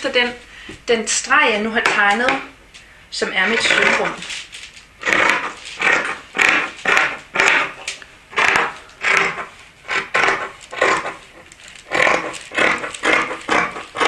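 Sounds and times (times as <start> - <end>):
shears snipping fabric: 3.4 - 14.0.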